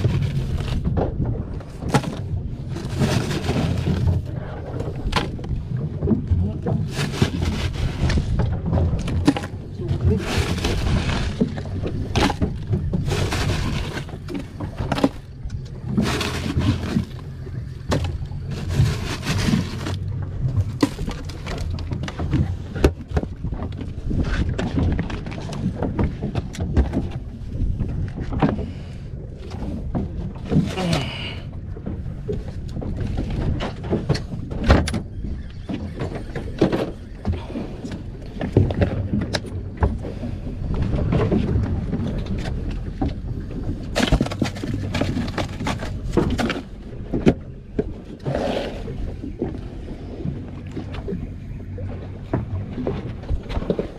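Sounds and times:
steady low rumble: 0.0s - 35.6s, 37.0s - 53.9s
crushed ice rattling and crunching: 9.0s - 15.2s, 15.9s - 17.2s, 17.9s - 20.1s, 43.9s - 46.7s.

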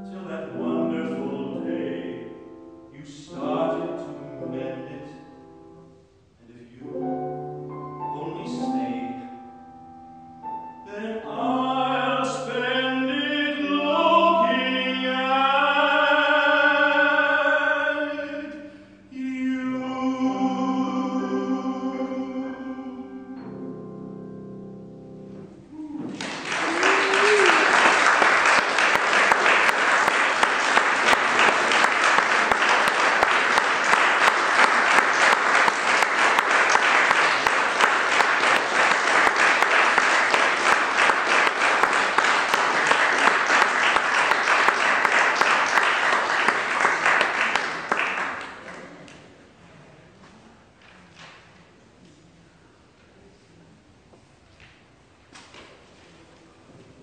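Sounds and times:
person calling out: 25.7s - 26.2s
audience applauding: 26.0s - 49.2s.

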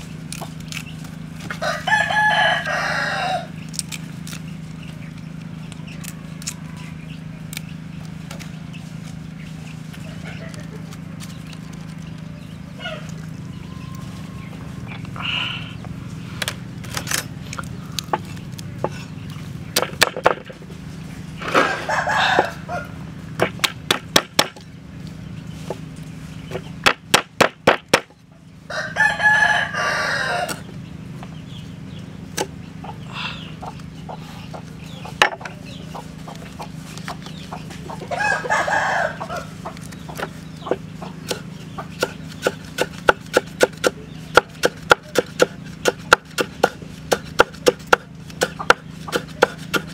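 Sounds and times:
rooster crowing: 1.5s - 3.6s, 21.6s - 23.1s, 28.7s - 30.6s, 38.1s - 39.6s
cleaver chopping on wooden block: 23.4s - 24.6s, 26.8s - 28.1s, 42.0s - 49.9s.

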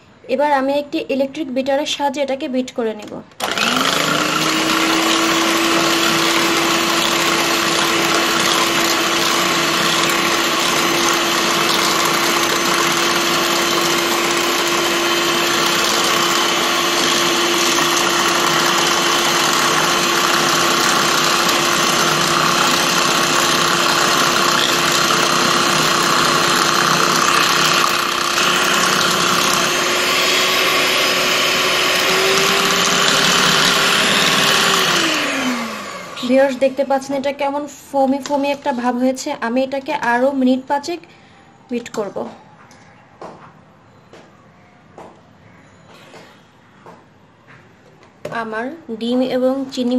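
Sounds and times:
electric hand mixer whining: 3.4s - 37.1s.

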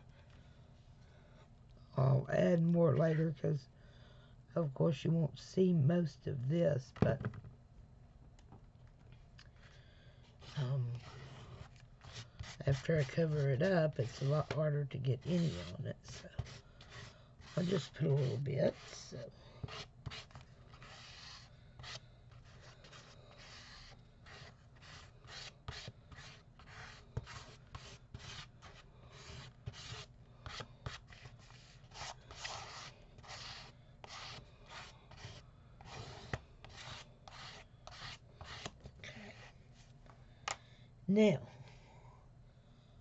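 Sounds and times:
paste scraping on paper: 10.4s - 14.6s, 15.2s - 39.5s.

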